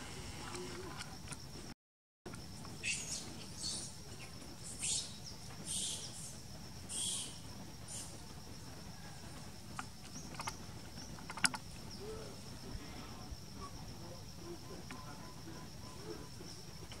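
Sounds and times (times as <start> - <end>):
shrill animal calls: 2.8 - 6.3, 6.9 - 8.2.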